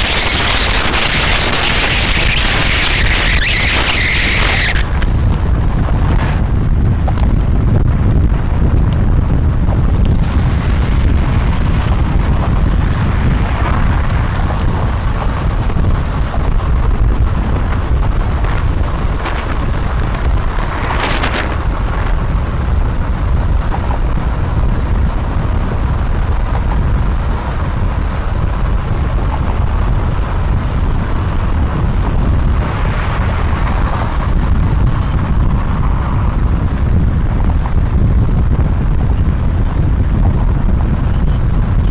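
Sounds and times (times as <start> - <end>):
loud whoosh: 0.0 - 26.3
car driving rumble: 0.0 - 41.9
wind buffeting microphone: 0.0 - 41.9.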